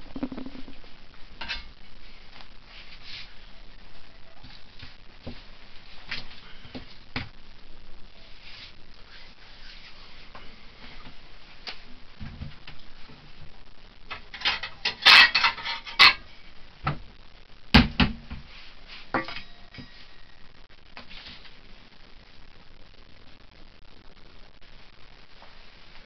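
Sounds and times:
dishes clattering and rattling: 0:14.1 - 0:16.3
dishes clinking: 0:14.4 - 0:16.3.

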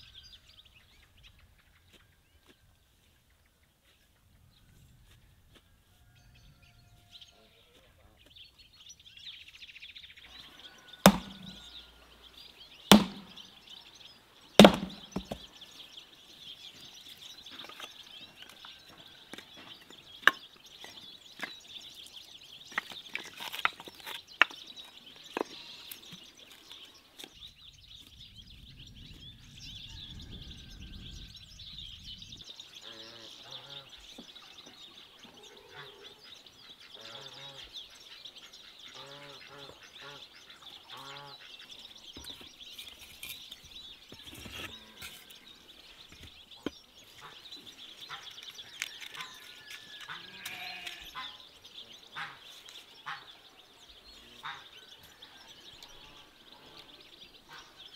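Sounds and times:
birds chirping: 0:00.0 - 0:57.9
axe splitting firewood: 0:11.0 - 0:11.7, 0:12.9 - 0:13.4, 0:14.6 - 0:15.5, 0:42.2 - 0:45.2
logs knocking while stacked: 0:11.1 - 0:11.6, 0:12.9 - 0:13.4, 0:14.6 - 0:15.5.

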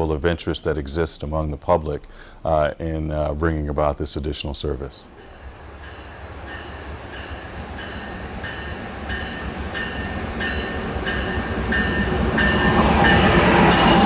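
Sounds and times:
train rumble: 0:04.7 - 0:14.0
locomotive bell ringing: 0:05.2 - 0:14.0.

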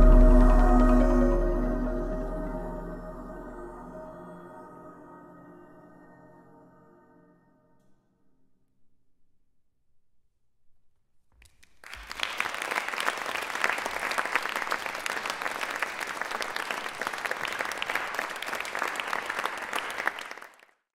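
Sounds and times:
audience clapping: 0:11.4 - 0:20.8.

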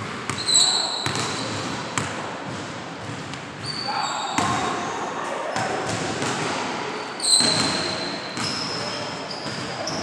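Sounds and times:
sneakers squeaking: 0:00.0 - 0:10.0
basketball bouncing on wooden floor: 0:01.0 - 0:03.8.

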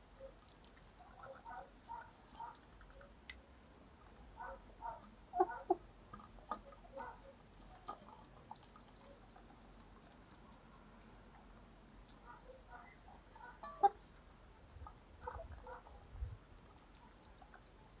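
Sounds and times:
chickens clucking: 0:04.4 - 0:09.4, 0:12.2 - 0:15.9.

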